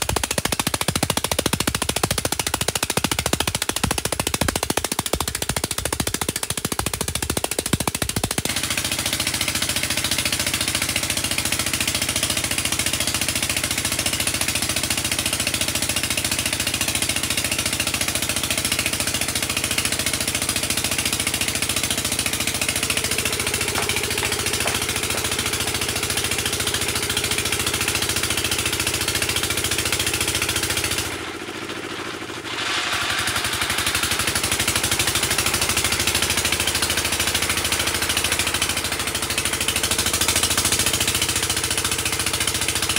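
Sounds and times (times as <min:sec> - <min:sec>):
drilling rig engine running: 0:19.2 - 0:41.8.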